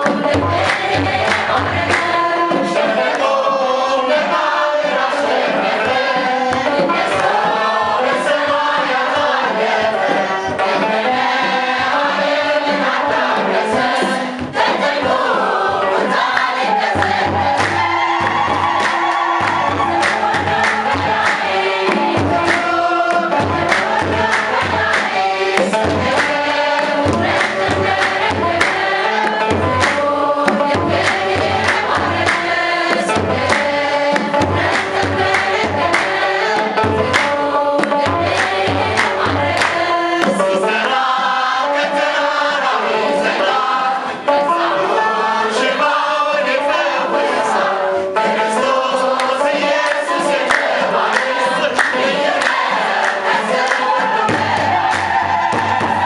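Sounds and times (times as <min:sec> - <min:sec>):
large drum beats: 0:00.0 - 0:02.9, 0:16.6 - 0:40.4, 0:54.0 - 0:56.0
choir singing a hymn: 0:00.0 - 0:56.0.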